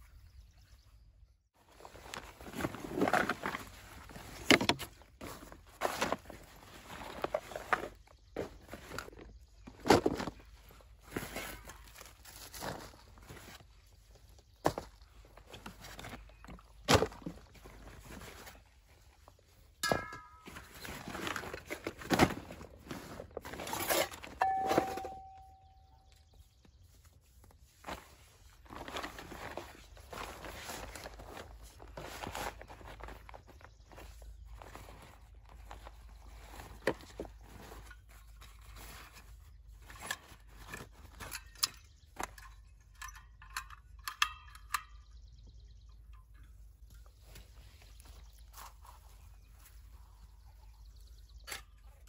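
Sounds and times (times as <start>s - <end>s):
groundsheet and clothing rustling: 1.6s - 43.0s, 46.5s - 52.0s
sharp clicks and metallic clinks: 41.1s - 45.2s.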